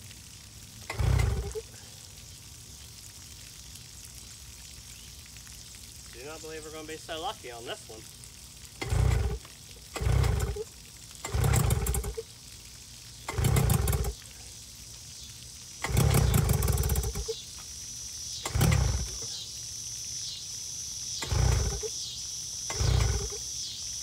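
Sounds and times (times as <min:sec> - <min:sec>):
running water hiss: 0:00.0 - 0:24.0
outboard engine pull-start cranking: 0:00.9 - 0:01.6, 0:08.8 - 0:10.6, 0:11.2 - 0:12.2, 0:13.3 - 0:14.2, 0:15.8 - 0:17.3, 0:18.4 - 0:19.3, 0:21.2 - 0:21.9, 0:22.7 - 0:23.4.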